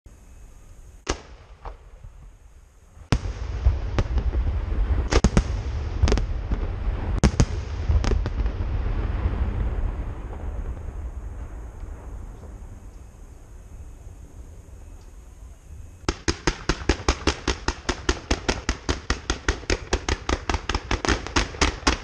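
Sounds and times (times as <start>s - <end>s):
low rumble: 0.1s - 16.1s
fireworks bursting with bangs: 1.0s - 13.6s, 16.0s - 22.0s.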